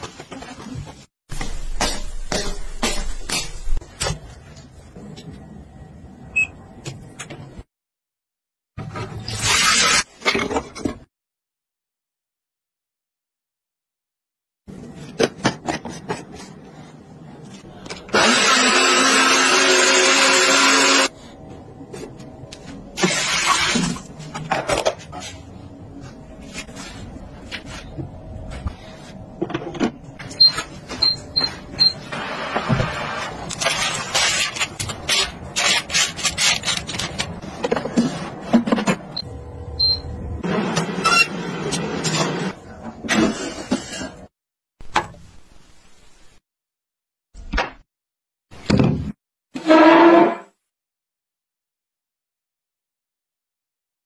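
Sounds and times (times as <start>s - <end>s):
blender running: 18.1s - 21.1s.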